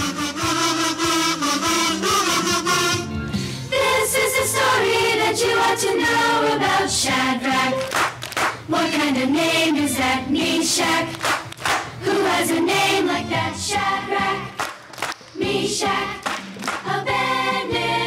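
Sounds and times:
musical accompaniment: 0:00.0 - 0:18.0
choir singing: 0:03.7 - 0:14.6, 0:15.4 - 0:18.0.

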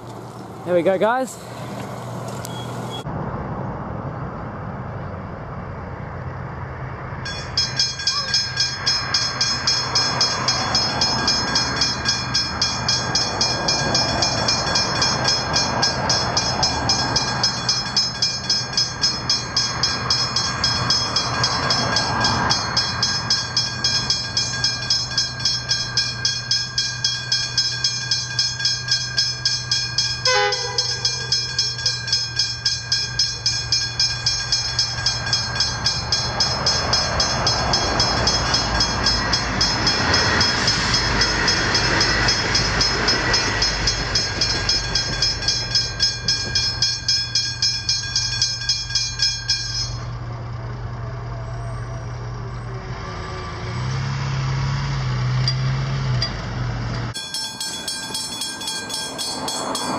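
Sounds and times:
level crossing bells ringing: 0:07.2 - 0:50.2, 0:55.3 - 0:59.9.

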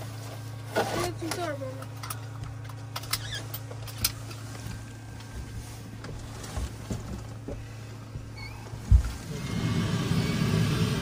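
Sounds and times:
helicopter cabin hum: 0:01.3 - 0:11.0.

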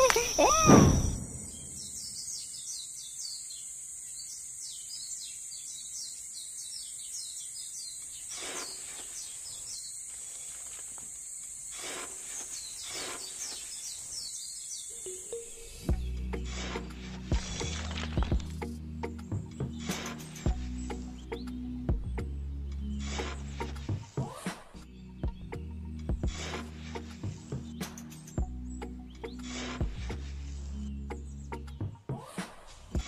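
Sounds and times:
bird chirps: 0:00.0 - 0:10.6, 0:12.1 - 0:18.0, 0:19.0 - 0:32.0
metal shovel scraping sandy soil: 0:08.1 - 0:11.0, 0:11.6 - 0:14.3, 0:16.3 - 0:18.6, 0:19.6 - 0:21.2, 0:23.0 - 0:24.6, 0:26.3 - 0:28.1, 0:29.3 - 0:30.9.

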